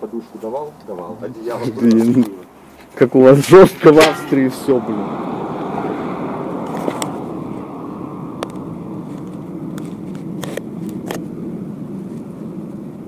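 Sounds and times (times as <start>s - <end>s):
bicycle tyre and wind noise: 4.6s - 13.0s.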